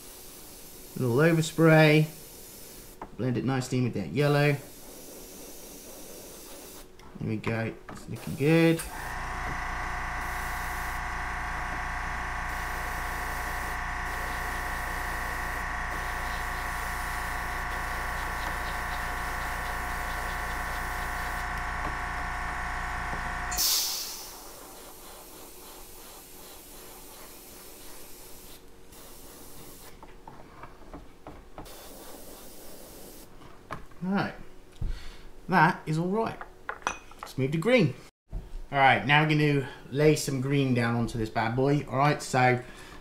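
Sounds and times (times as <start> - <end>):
air compressor motor humming: 8.2 - 25.2
hissing air burst: 12.4 - 21.5, 23.4 - 29.9.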